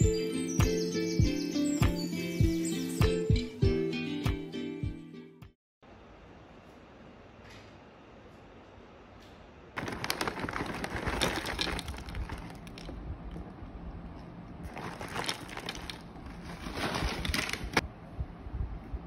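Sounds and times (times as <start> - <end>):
plastic bag crinkling: 9.8 - 12.9, 14.7 - 17.8.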